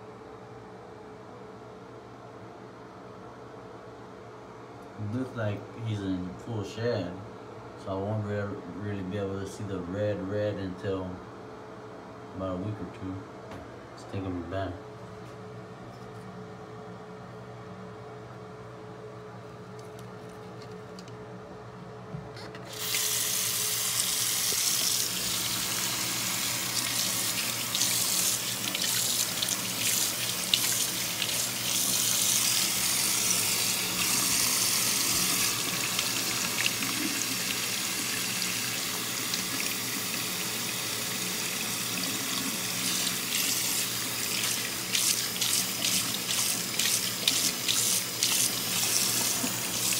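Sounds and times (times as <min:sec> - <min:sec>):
faucet water running into sink: 0:22.7 - 0:49.9.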